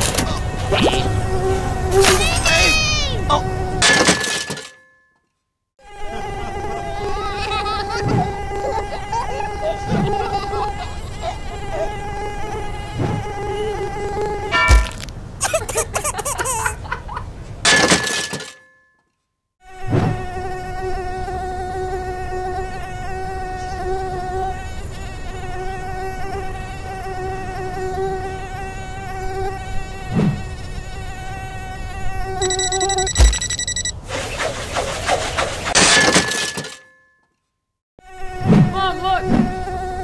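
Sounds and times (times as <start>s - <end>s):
drone propellers buzzing: 32.4s - 33.9s.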